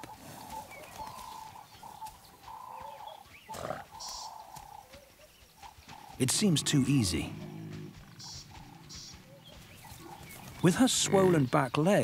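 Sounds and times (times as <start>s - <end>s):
buffalo grunt: 3.5s - 4.0s, 6.2s - 11.5s.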